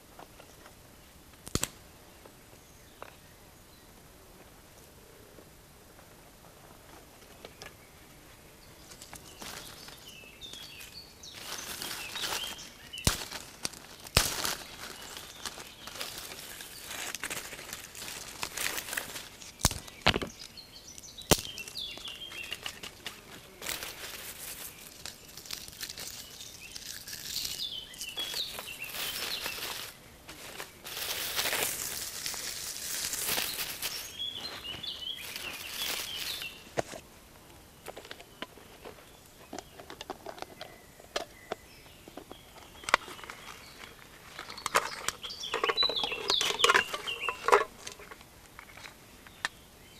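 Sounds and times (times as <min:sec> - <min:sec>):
sticks snapping: 0:01.4 - 0:01.8, 0:11.8 - 0:20.3, 0:21.0 - 0:24.0, 0:24.8 - 0:30.0
small birds chirping: 0:02.0 - 0:49.9
twigs rustling and crackling: 0:08.7 - 0:49.5.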